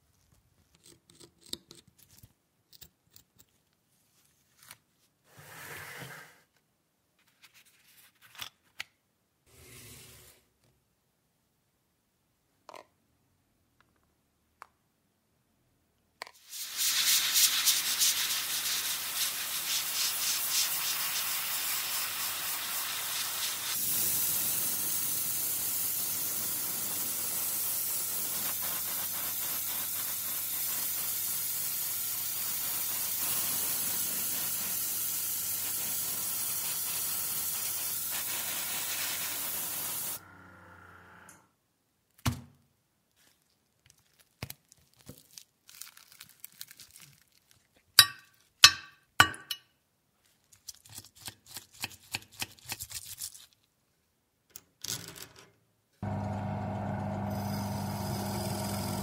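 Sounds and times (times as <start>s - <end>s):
airbrush spraying hiss: 16.4s - 40.2s.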